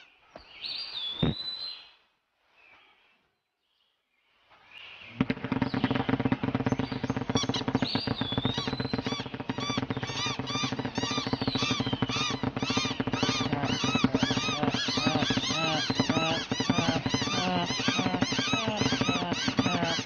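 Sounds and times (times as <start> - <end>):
cartoon birds squawking and chirping: 7.2 - 20.0.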